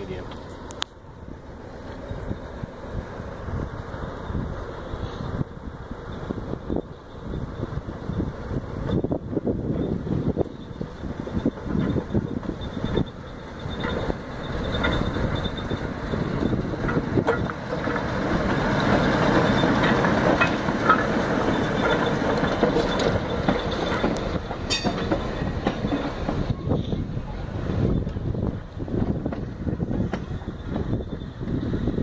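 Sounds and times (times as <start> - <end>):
diesel locomotive engine: 0.0 - 32.0
wheels clacking over rail joints: 5.8 - 32.0
high squeal: 6.1 - 16.9, 20.9 - 27.0.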